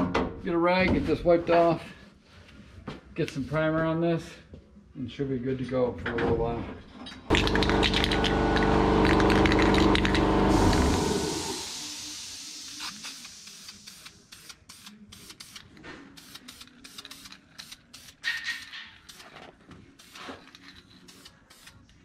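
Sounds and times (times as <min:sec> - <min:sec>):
motor running and winding down: 0:07.3 - 0:11.7
spray can hissing bursts: 0:09.0 - 0:19.3, 0:20.0 - 0:20.4, 0:21.1 - 0:21.8.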